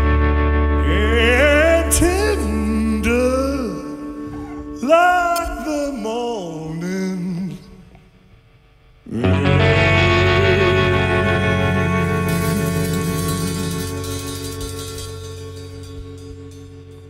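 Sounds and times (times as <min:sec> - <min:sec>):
man singing with vibrato: 0:00.8 - 0:08.0, 0:09.1 - 0:16.2
rock band chord: 0:09.1 - 0:17.0.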